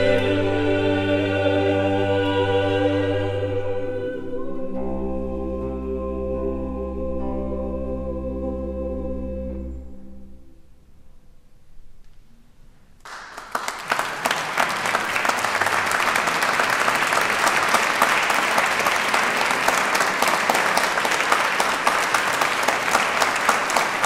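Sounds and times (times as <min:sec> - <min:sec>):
audience applause: 0:13.1 - 0:24.0.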